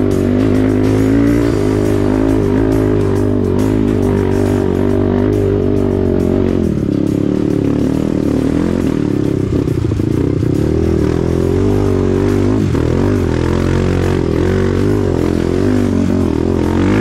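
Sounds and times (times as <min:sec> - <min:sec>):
motorcycle engine revving: 0:00.0 - 0:17.0
music playing: 0:00.0 - 0:17.0.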